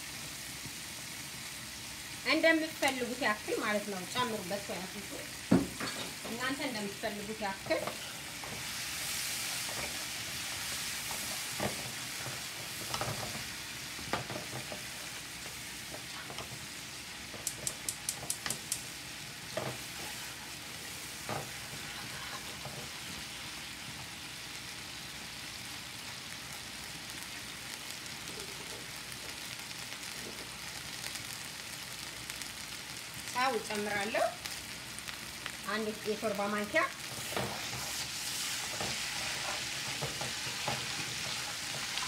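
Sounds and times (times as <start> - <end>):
sauce sizzling in frying pan: 0.0 - 42.0
wooden spatula knocking on pan: 5.5 - 6.0.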